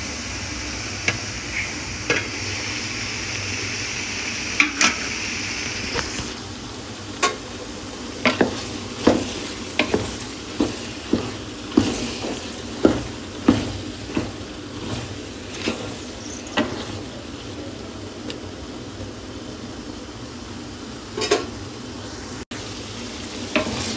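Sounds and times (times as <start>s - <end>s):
frying sizzle: 0.0s - 23.9s
wooden spatula knocking metal pot: 8.2s - 16.9s.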